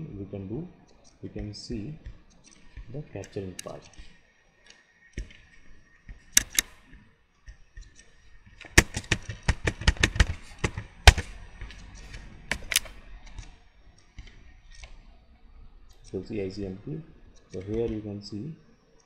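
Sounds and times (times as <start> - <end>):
keyboard key clicks: 6.3 - 6.8, 8.0 - 13.6.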